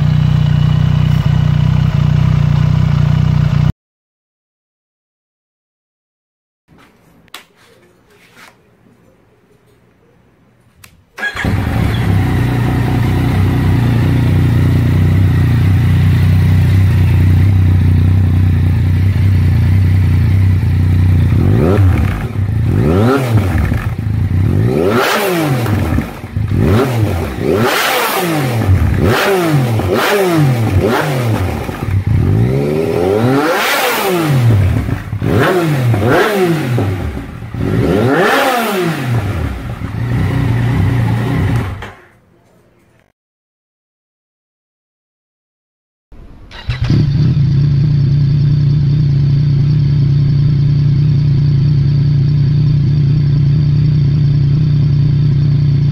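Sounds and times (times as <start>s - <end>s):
motorcycle engine revving: 0.0s - 3.7s, 11.2s - 42.1s, 46.5s - 55.9s.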